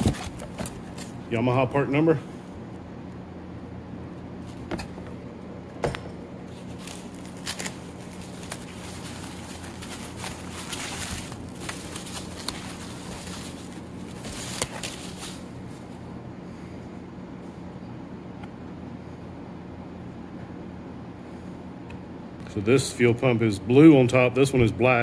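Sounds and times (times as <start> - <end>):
plastic wrapping rustling: 0.0 - 1.2, 6.5 - 16.0
steady low hum: 0.0 - 25.0.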